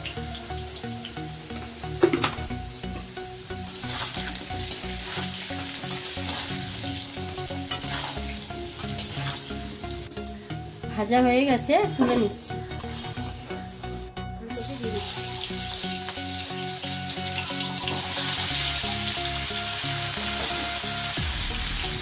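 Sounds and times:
potatoes sizzling in hot oil: 0.0 - 10.5, 14.5 - 22.0
metal spatula scraping pan: 3.6 - 6.6, 7.6 - 9.5.

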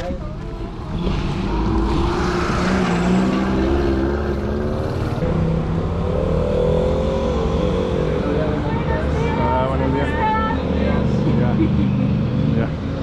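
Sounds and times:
vehicle engine speeding up: 0.9 - 10.0.

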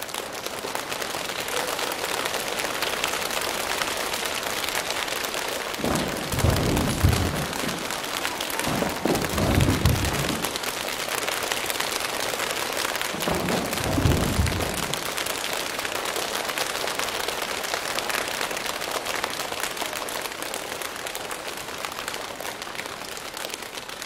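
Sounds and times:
hands pattering like rain: 0.0 - 17.9
deep stamping rumbles: 5.8 - 10.8, 13.1 - 15.3.

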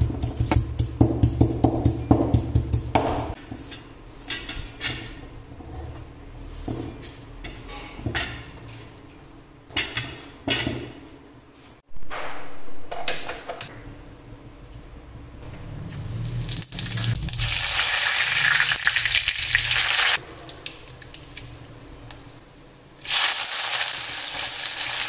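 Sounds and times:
music with drum beat: 0.0 - 3.0.

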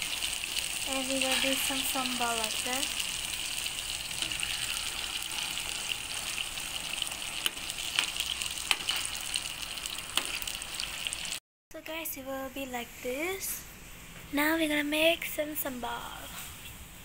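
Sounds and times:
chicken deep-frying in oil: 0.0 - 11.4.

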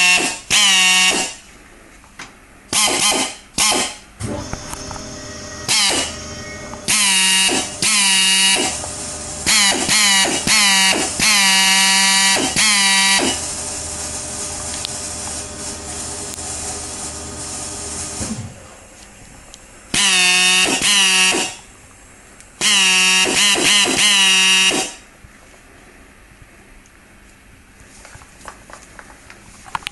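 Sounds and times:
air drill motor whining: 0.0 - 1.4, 2.8 - 18.4, 19.9 - 21.6, 22.6 - 25.0
hiss of air: 12.2 - 18.6.

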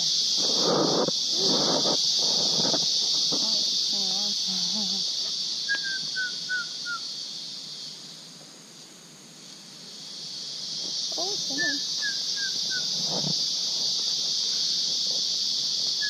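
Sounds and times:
high-pitched insect chorus: 0.0 - 16.0.

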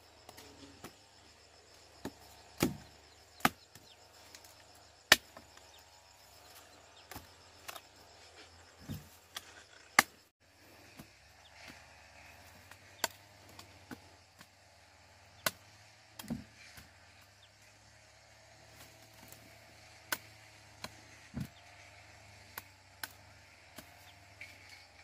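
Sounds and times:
sharp chopping knocks: 2.0 - 3.8, 16.2 - 16.5.

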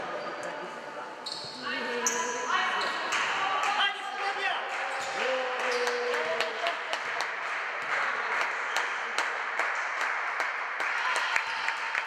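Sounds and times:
rhythmic clapping: 4.6 - 12.0.

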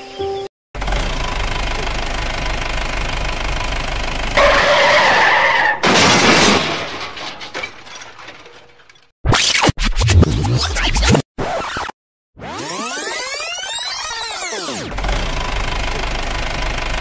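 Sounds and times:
car engine running: 0.8 - 4.6, 14.9 - 17.0
tyre screech: 4.4 - 5.8
crash and splash: 5.8 - 7.7.

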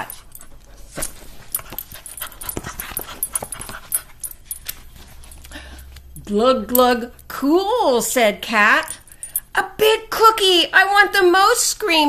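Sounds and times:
rustling: 0.0 - 6.2.

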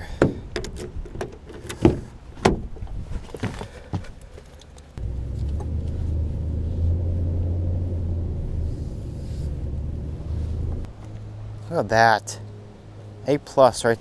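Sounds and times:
truck engine starting and idling: 5.0 - 10.9.

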